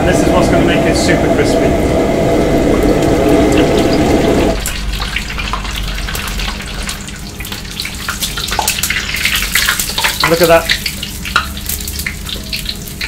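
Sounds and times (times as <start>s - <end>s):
low rushing sound: 0.0s - 4.7s
oil bubbling and crackling: 2.7s - 13.0s.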